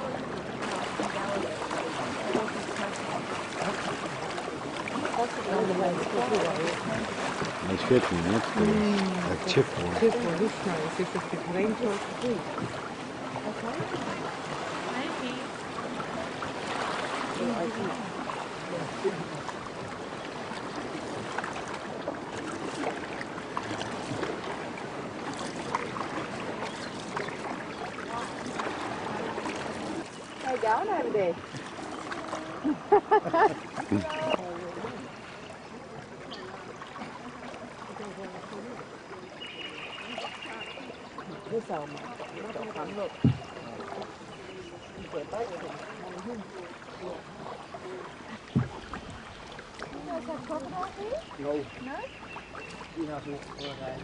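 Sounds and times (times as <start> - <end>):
paddle strokes in water: 0.0 - 54.0
water splashing along canoe hull: 0.0 - 54.0.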